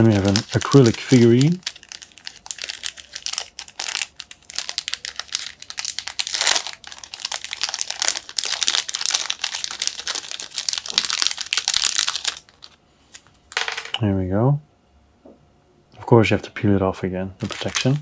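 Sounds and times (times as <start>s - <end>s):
plastic wrapping crinkling: 0.0s - 13.3s, 17.4s - 18.0s.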